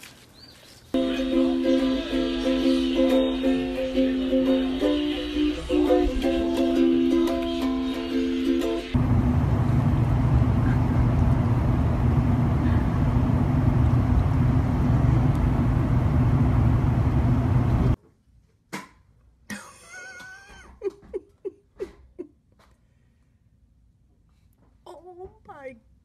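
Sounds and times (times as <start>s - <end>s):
vehicle engine rumbling: 8.9s - 18.0s.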